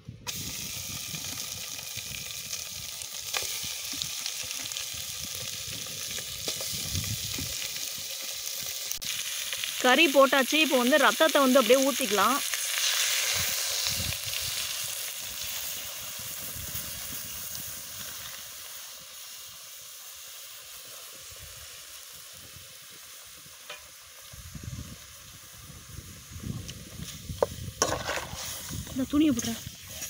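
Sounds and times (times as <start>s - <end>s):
meat sizzling in a pan: 0.3s - 30.0s.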